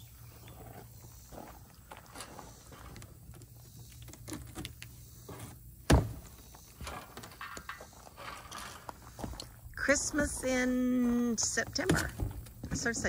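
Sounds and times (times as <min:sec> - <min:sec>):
cardboard box thump: 0:05.9 - 0:06.2.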